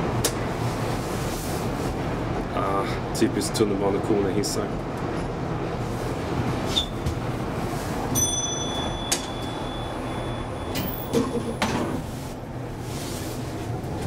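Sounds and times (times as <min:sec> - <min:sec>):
thin high steady tone: 0:08.1 - 0:11.2.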